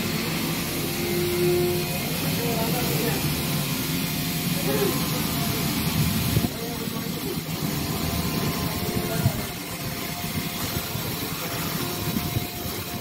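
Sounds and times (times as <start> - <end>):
engine running: 0.0 - 13.0
men talking: 4.4 - 7.6.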